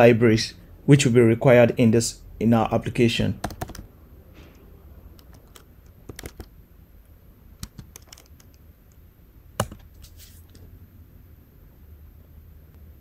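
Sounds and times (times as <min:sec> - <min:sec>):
typing on computer keyboard: 0:03.4 - 0:03.9, 0:05.2 - 0:06.6, 0:07.6 - 0:08.6, 0:09.6 - 0:09.9
loud key press: 0:05.2 - 0:06.5, 0:07.6 - 0:08.6, 0:09.6 - 0:10.0.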